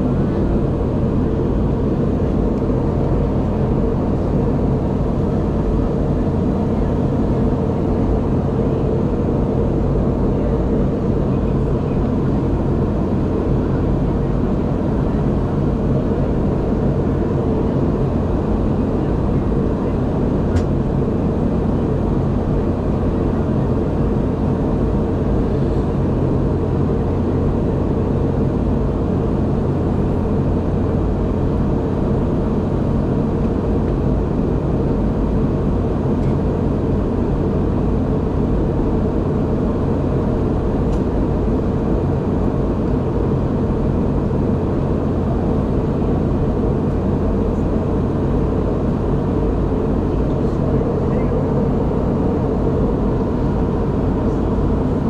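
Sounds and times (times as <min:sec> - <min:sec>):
low jet engine hum: 0:00.0 - 0:55.0.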